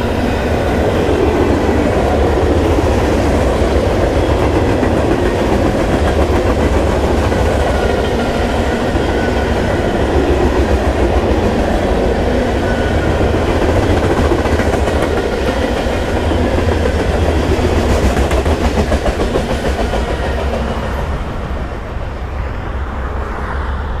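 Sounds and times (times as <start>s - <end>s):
freight train wheels clacking: 0.0s - 21.8s.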